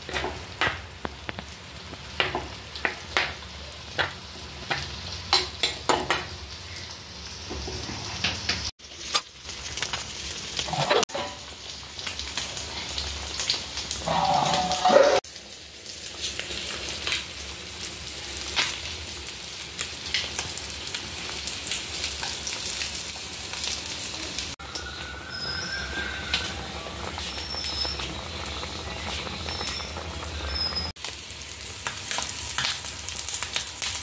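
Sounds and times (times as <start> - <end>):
curry bubbling and sizzling: 0.0 - 34.0
metal lid scraping and ringing: 14.4 - 15.2.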